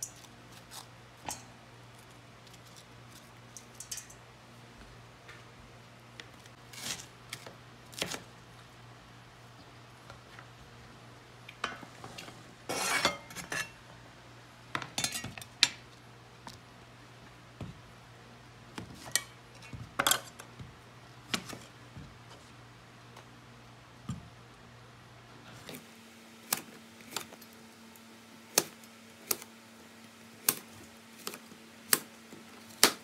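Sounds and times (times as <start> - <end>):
cleaver scraping board: 12.7 - 13.6.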